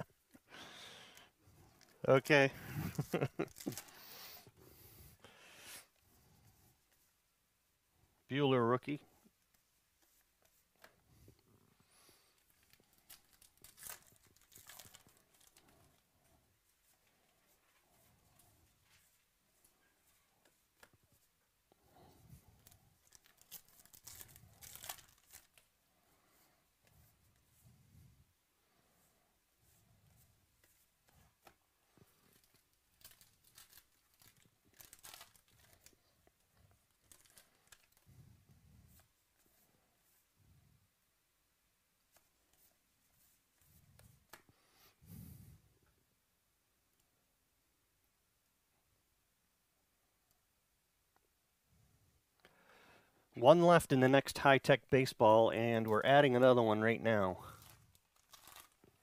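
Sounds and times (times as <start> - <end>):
wrapper tearing and crinkling: 2.9 - 4.0, 12.4 - 16.0, 22.6 - 25.7, 32.2 - 36.0, 36.9 - 38.0, 57.4 - 59.0
cards being shuffled: 12.4 - 16.0, 22.6 - 25.7.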